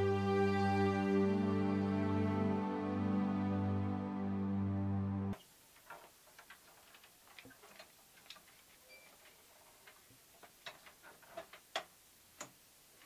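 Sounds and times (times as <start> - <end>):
faint clicks and taps: 5.7 - 13.0.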